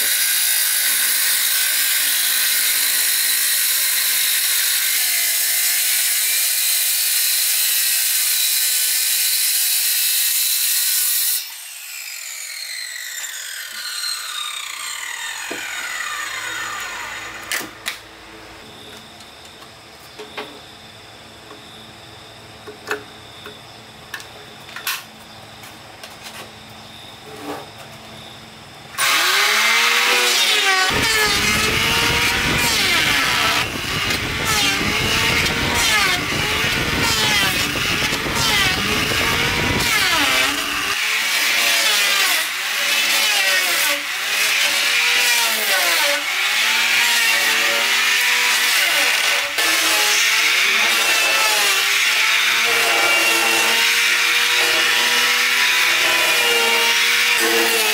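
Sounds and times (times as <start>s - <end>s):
electric hand planer whining: 10.5s - 19.0s, 29.0s - 57.9s.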